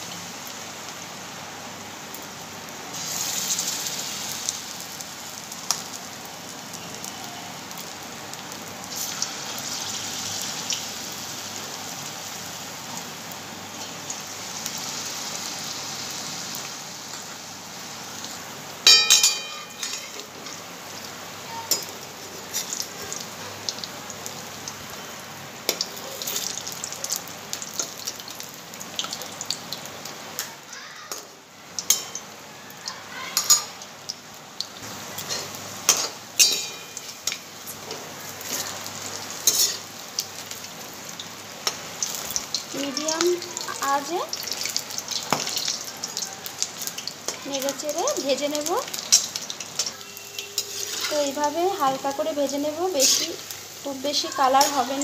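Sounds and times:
food deep-frying in oil: 0:00.0 - 0:55.0
sharp metal clink: 0:18.9 - 0:20.1.

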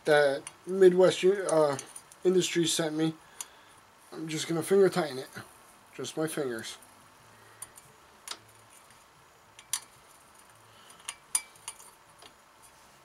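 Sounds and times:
light metallic clicks and taps: 0:00.4 - 0:00.7, 0:09.5 - 0:12.4.

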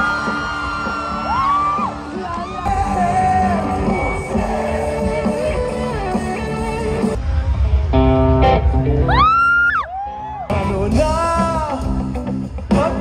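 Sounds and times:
live rock band: 0:00.0 - 0:07.2, 0:10.5 - 0:13.0
electric guitar: 0:00.0 - 0:09.8, 0:10.5 - 0:13.0
person singing: 0:02.1 - 0:07.2.

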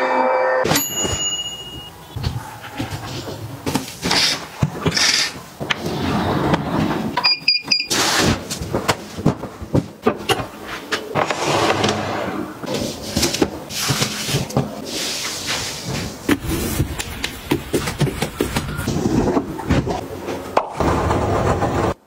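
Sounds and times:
window sliding open: 0:11.2 - 0:12.4.

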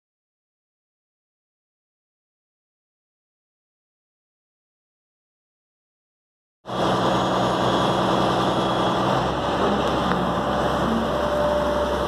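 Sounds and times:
diesel engine idling: 0:06.7 - 0:12.0.

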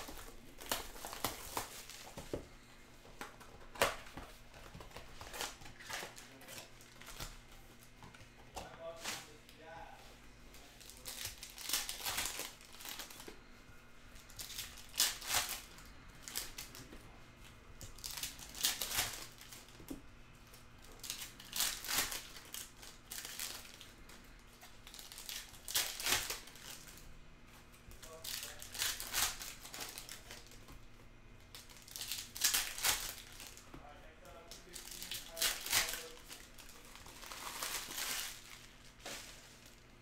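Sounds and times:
foil wrappers tearing and crinkling: 0:00.0 - 0:02.6, 0:03.6 - 0:07.4, 0:10.6 - 0:13.3, 0:14.2 - 0:16.9, 0:17.8 - 0:19.8, 0:20.8 - 0:27.0, 0:27.9 - 0:30.6, 0:31.5 - 0:33.6, 0:34.2 - 0:39.8.

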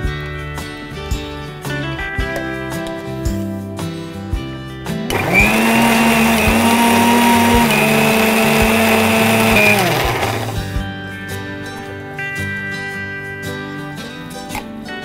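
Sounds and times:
mixer grinder running: 0:05.1 - 0:10.7.

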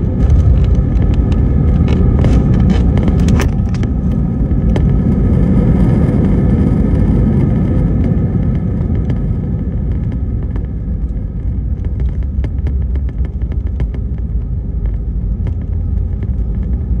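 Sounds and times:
low rumble of wheels and engines: 0:00.0 - 0:17.0
small clicks and rattles: 0:08.0 - 0:17.0.

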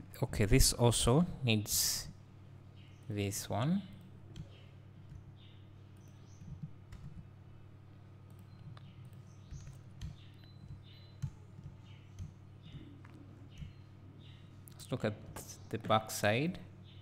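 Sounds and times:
low electrical hum: 0:00.0 - 0:17.0
computer mouse clicks: 0:08.3 - 0:13.8.

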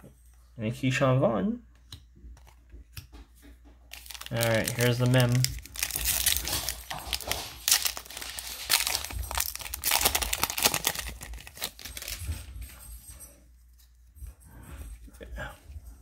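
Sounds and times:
plastic wrapper crinkling and tearing: 0:03.9 - 0:12.3.

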